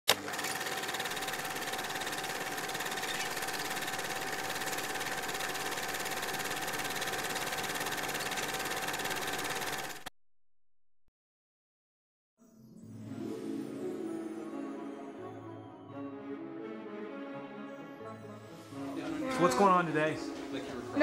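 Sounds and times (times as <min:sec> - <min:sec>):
film projector clatter: 0:00.1 - 0:10.1.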